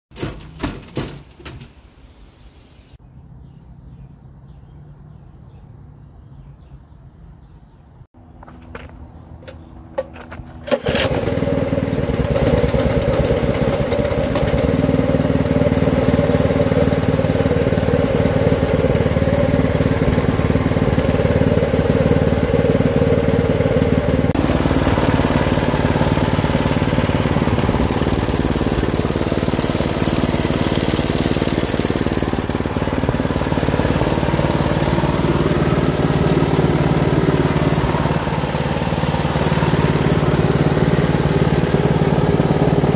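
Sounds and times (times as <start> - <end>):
engine idling: 9.4 - 42.9.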